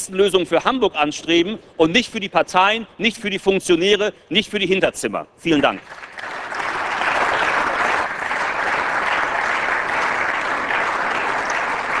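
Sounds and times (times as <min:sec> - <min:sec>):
crowd applause: 0:05.8 - 0:12.0.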